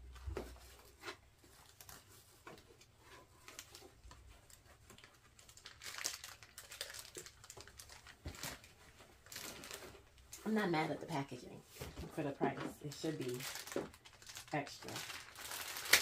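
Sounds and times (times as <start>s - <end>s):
packaging crinkling: 3.4s - 10.5s, 12.9s - 16.0s.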